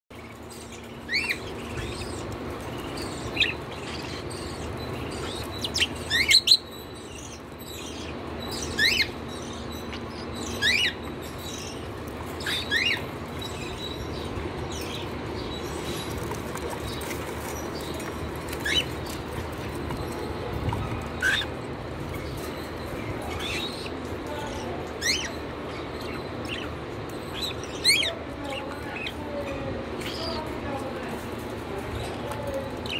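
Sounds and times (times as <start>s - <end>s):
steady low hum: 0.1s - 32.9s
cockatiels chirping: 0.6s - 15.0s, 20.1s - 21.5s, 22.1s - 29.2s.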